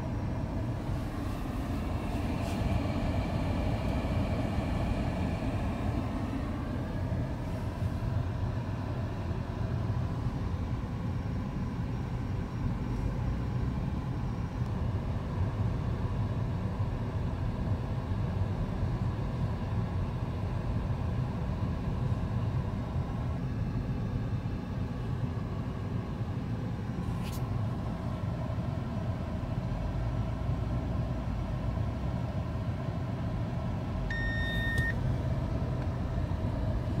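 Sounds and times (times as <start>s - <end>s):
road and traffic rumble: 0.0s - 37.0s
electronic beep: 34.1s - 35.0s.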